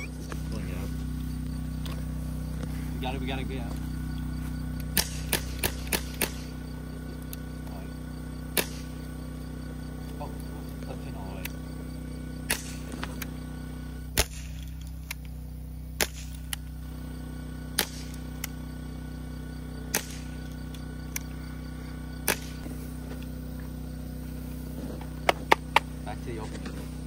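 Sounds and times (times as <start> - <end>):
steady low hum: 0.0 - 27.0
air gun shots: 4.9 - 6.6, 8.5 - 9.0, 12.4 - 13.1, 14.1 - 15.2, 15.9 - 16.6, 17.7 - 18.5, 19.9 - 20.4, 22.2 - 22.7.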